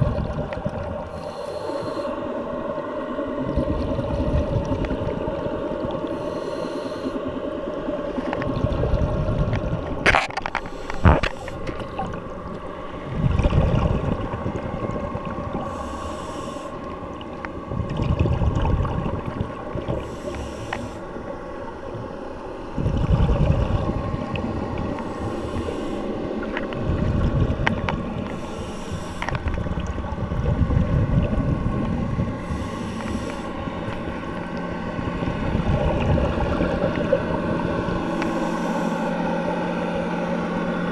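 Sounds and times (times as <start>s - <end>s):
exhaled bubbles rumbling: 0.0s - 6.2s, 7.3s - 40.9s
faint hum: 0.0s - 40.9s
regulator inhale hiss: 1.0s - 2.3s, 6.0s - 7.3s, 10.6s - 11.6s, 15.6s - 17.0s, 20.0s - 21.2s, 25.0s - 26.4s, 28.2s - 29.6s, 32.4s - 34.2s, 38.1s - 39.3s.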